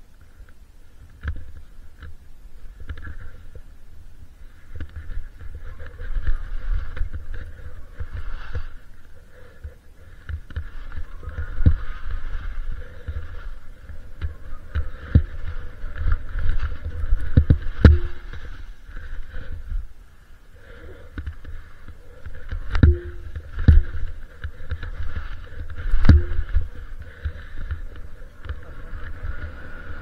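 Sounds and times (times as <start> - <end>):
skis scraping over snow: 4.4 - 30.0
sharp knocks: 22.7 - 23.8.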